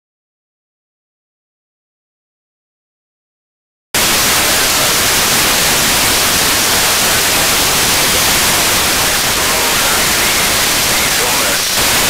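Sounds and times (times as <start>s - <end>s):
radio static hiss: 4.0s - 12.0s.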